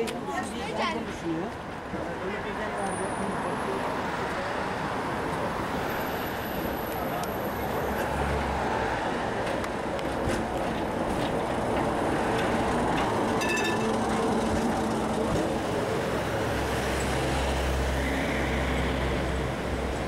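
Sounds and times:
city traffic noise: 0:00.0 - 0:20.0
tram wheels and motor rumbling: 0:06.9 - 0:20.0
rapid bell ringing: 0:13.4 - 0:14.0.

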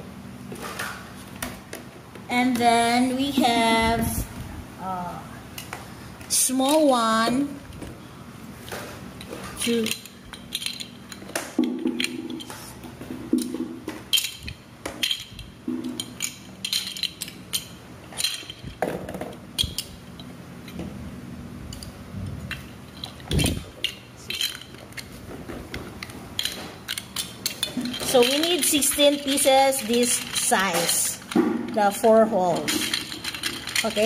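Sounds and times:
plastic toy blocks clacking: 0:09.6 - 0:12.5, 0:23.0 - 0:25.1, 0:26.0 - 0:34.0.

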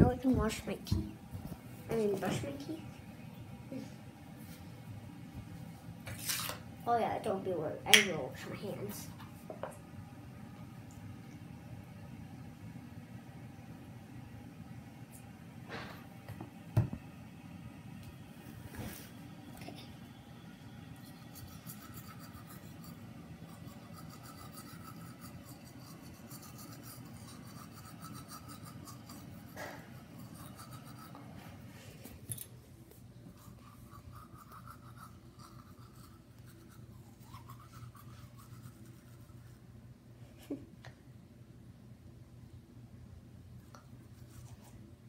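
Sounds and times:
toothbrush scrubbing teeth: 0:21.0 - 0:31.4, 0:33.3 - 0:39.6.

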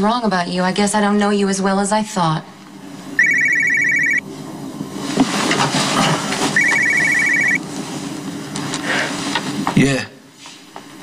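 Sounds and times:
mobile phone ringing: 0:03.2 - 0:04.2, 0:06.6 - 0:07.6.

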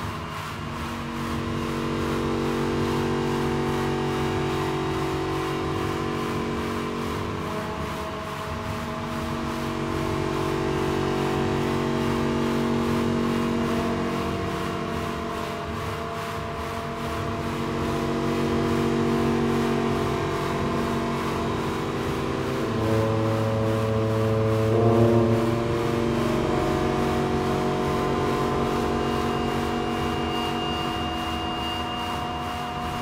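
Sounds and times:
slow music of held chords: 0:00.0 - 0:33.0.

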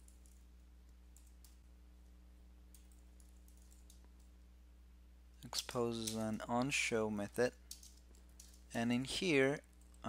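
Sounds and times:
keyboard typing: 0:00.0 - 0:00.5, 0:01.1 - 0:01.6, 0:02.7 - 0:04.3
low electrical hum: 0:00.0 - 0:10.0.

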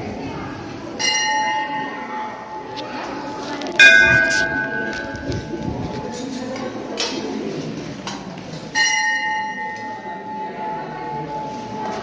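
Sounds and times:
temple bell ringing: 0:01.0 - 0:06.7, 0:08.7 - 0:12.0.

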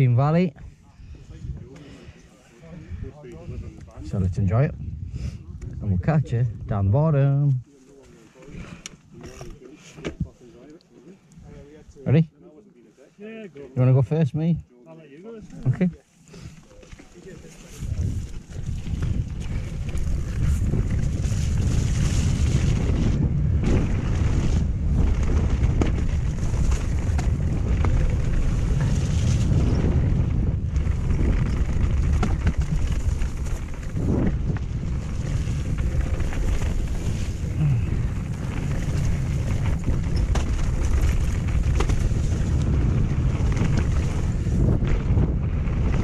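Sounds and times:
wind buffeting microphone: 0:00.6 - 0:06.9, 0:17.2 - 0:46.0
bike knocks and rattles: 0:18.2 - 0:46.0
tyres rolling on wet gravel: 0:24.0 - 0:45.2.

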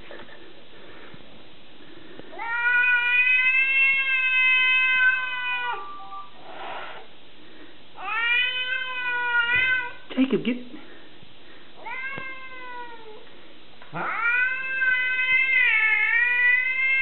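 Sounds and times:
cat yowling: 0:02.4 - 0:06.4, 0:08.0 - 0:10.0, 0:11.8 - 0:13.2, 0:13.9 - 0:17.0.

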